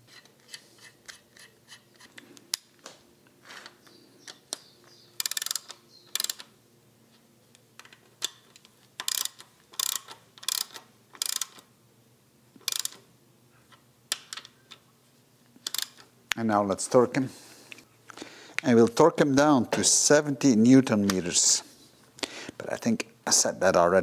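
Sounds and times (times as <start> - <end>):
ratchet wrench clicking: 5.2 - 6.5, 9.0 - 11.6, 12.6 - 13.0, 15.6 - 16.0.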